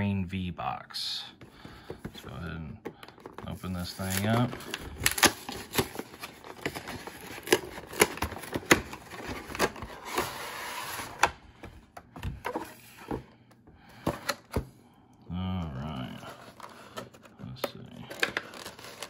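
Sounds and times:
packaging clicks and scrapes: 2.8s - 11.3s, 15.8s - 19.0s.

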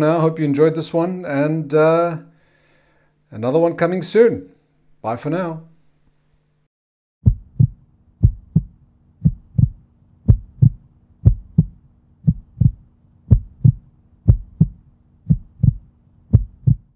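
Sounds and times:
low steady hum: 0.0s - 16.9s
heartbeat thumps: 7.2s - 16.9s.

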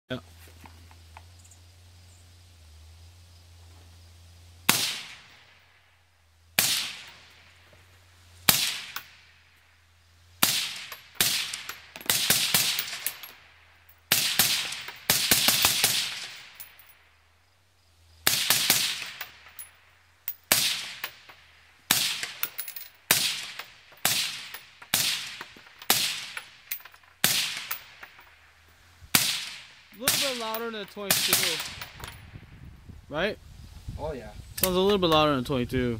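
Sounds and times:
suppressed rifle shots: 4.7s - 5.7s, 6.6s - 7.5s, 8.5s - 9.3s, 10.4s - 13.1s, 14.1s - 16.6s, 18.2s - 19.4s, 27.2s - 28.0s, 29.1s - 32.2s.

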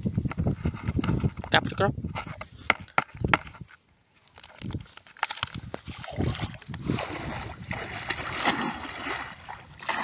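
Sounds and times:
water sloshing and splashing: 4.4s - 10.0s.

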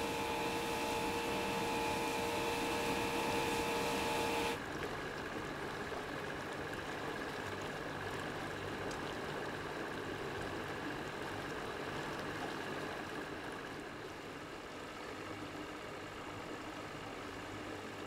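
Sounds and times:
boat engine humming: 0.0s - 4.6s.

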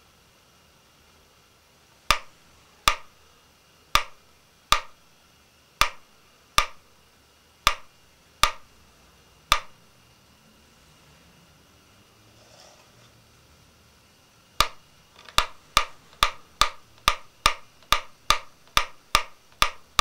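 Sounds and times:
metronome ticking: 2.1s - 3.1s, 3.9s - 5.0s, 5.8s - 6.8s, 7.6s - 8.7s, 9.5s - 9.8s, 14.6s - 20.0s.

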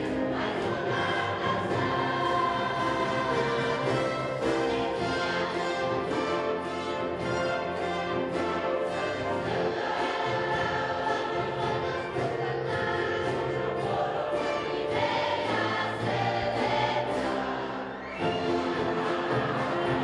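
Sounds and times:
wind band playing: 0.0s - 12.5s
choir singing: 0.0s - 20.0s.

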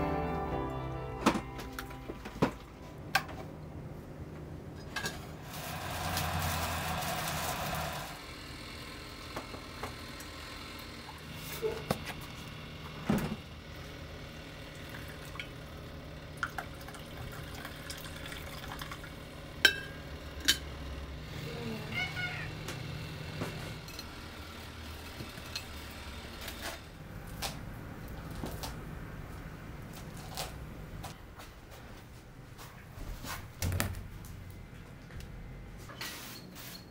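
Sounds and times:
liquid being poured: 16.4s - 19.2s
ceramic mugs and utensils clinking: 19.6s - 20.7s.

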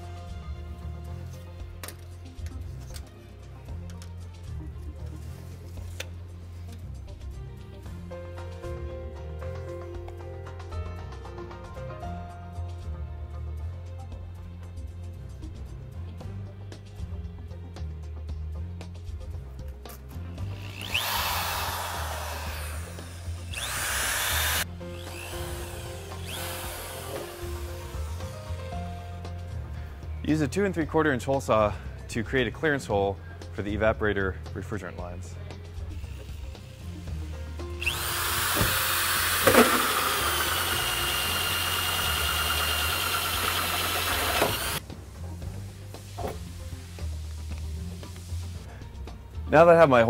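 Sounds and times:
background music: 0.0s - 50.0s
electric drill drilling metal: 20.5s - 28.6s, 37.7s - 44.8s
hole saw grinding metal: 20.5s - 28.6s, 37.8s - 44.8s.

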